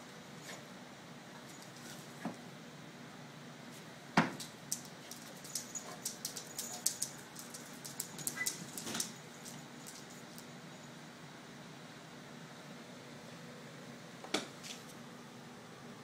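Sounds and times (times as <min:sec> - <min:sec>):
dog claws clicking on floor: 0:04.4 - 0:10.5.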